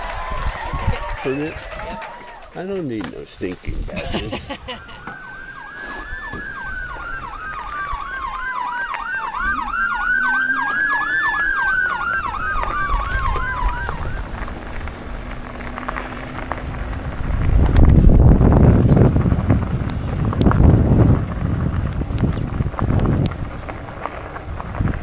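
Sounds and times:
siren yelping: 4.5 - 14.4
siren wailing: 4.6 - 14.8.

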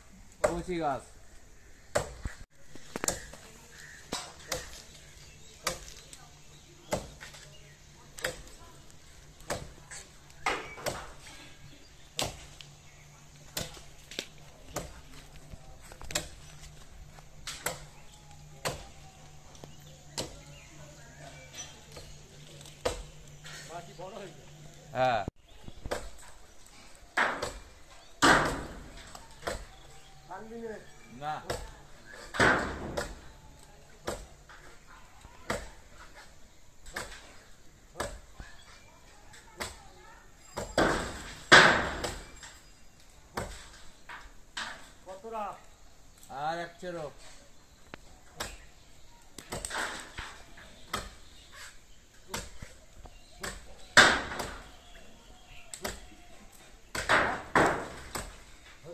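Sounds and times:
blade chopping into tree: 4.1 - 4.9, 27.2 - 29.7.

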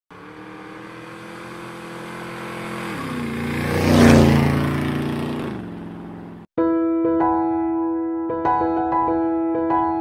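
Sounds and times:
engine passing by: 0.1 - 6.5.

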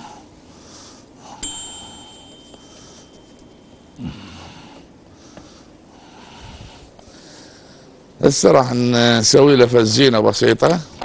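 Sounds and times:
person breathing: 0.0 - 3.4, 4.0 - 8.1
faint high-pitched tone: 1.4 - 4.4.

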